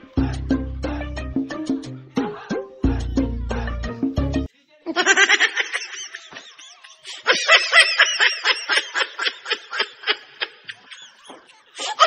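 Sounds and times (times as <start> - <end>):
high-pitched giggling laughter: 4.9 - 12.0.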